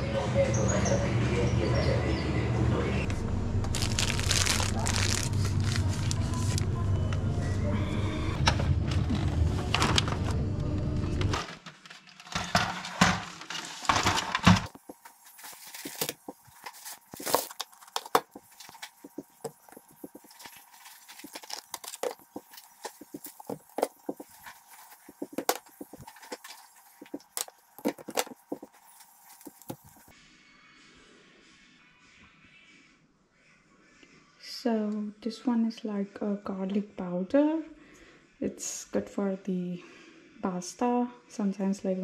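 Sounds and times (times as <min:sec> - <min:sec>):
plastic egg carton crinkling: 0:03.7 - 0:06.7, 0:13.4 - 0:30.1.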